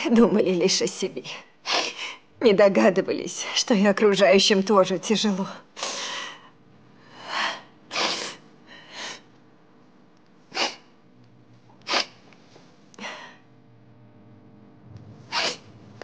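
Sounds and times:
woman crying and sniffing: 1.6s - 2.3s, 7.2s - 9.3s, 10.5s - 10.9s, 11.8s - 12.2s, 15.3s - 15.8s.

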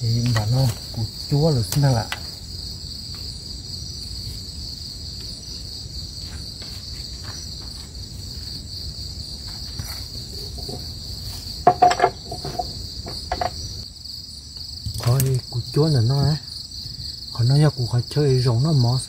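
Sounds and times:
crickets and night insects: 0.0s - 19.0s
bamboo sticks knocking: 1.6s - 2.4s, 9.5s - 13.6s.

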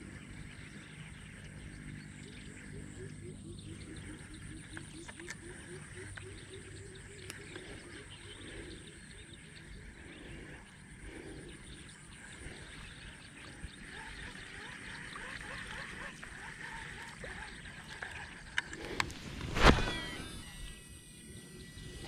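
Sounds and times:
animal chirps and trills: 19.6s - 22.0s.

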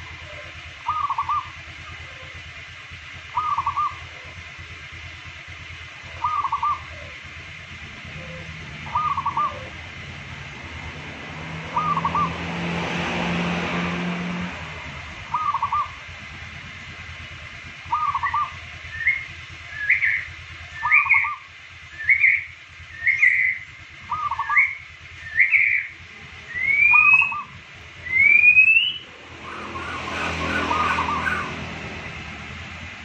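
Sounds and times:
dove cooing: 0.0s - 2.4s, 3.3s - 4.4s, 6.0s - 10.1s, 11.6s - 12.4s, 15.2s - 16.1s, 17.9s - 19.2s, 23.1s - 24.7s, 26.5s - 32.0s
rising whistled notes: 17.9s - 25.9s, 26.5s - 31.6s.

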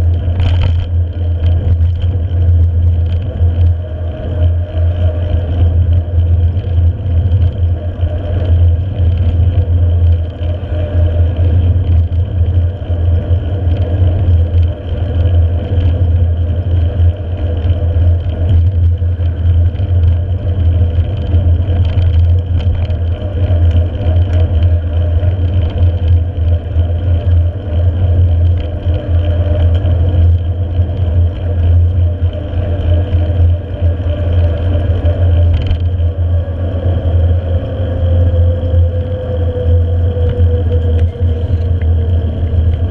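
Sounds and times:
bike tyres rolling on asphalt: 0.0s - 42.9s
wind noise on microphone: 0.0s - 42.9s.

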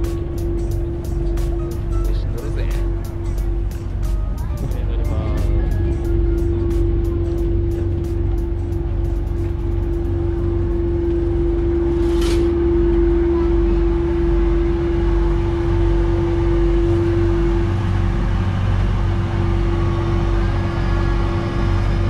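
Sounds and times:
ferry engine droning: 0.0s - 22.0s
mid-pitched whine: 0.0s - 22.0s.

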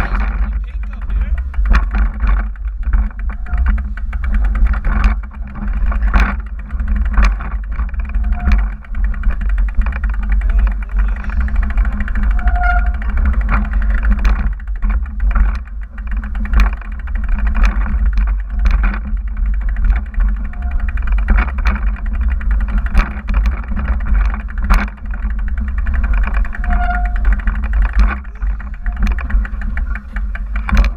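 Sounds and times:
bike frame and chain rattling: 0.0s - 30.9s
short squeak: 12.4s - 13.0s, 26.6s - 27.2s.

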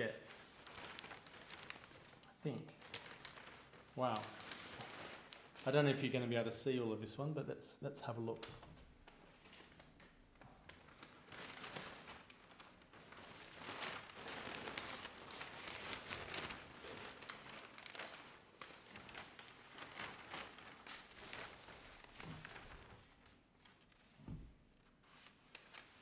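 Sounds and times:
paper rustling and crinkling: 0.0s - 5.9s, 8.4s - 26.0s.

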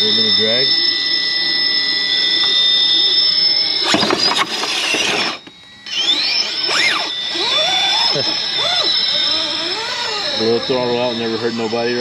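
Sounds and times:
electric motor whining: 0.0s - 12.0s
tyres scrabbling on rock: 3.9s - 5.5s.

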